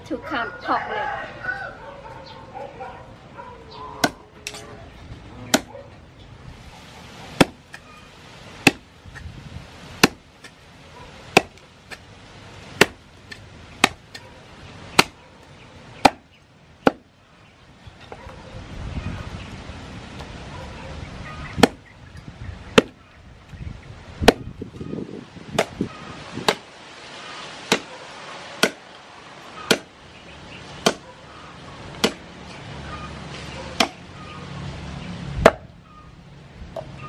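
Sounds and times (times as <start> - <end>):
cleaver chopping on wooden block: 4.0 - 4.6, 5.5 - 5.7, 7.4 - 7.8, 8.6 - 9.3, 10.0 - 10.6, 11.3 - 12.0, 12.8 - 14.2, 15.0 - 15.2, 16.0 - 17.1, 21.6 - 21.8, 22.8 - 23.0, 24.2 - 24.5, 25.5 - 26.7, 27.7 - 27.9, 28.6 - 28.8, 29.7 - 29.9, 30.8 - 31.0, 32.0 - 32.2, 33.8 - 34.0, 35.4 - 35.7.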